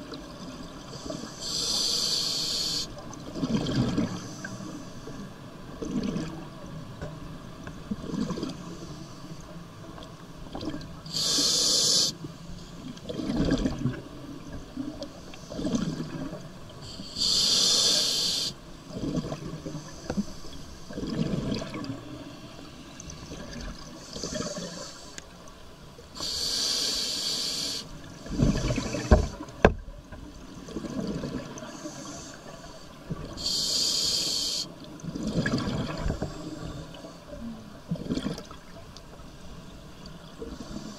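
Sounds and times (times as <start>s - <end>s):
hissing regulator inhalations: 0.9s - 3.0s, 11.1s - 12.2s, 16.9s - 18.6s, 26.2s - 28.0s, 31.7s - 34.8s
bubbling of exhaled air: 28.3s - 29.4s.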